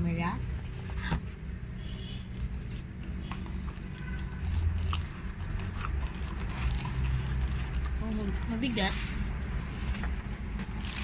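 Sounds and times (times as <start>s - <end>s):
cardboard and paper rustling: 3.2s - 11.0s.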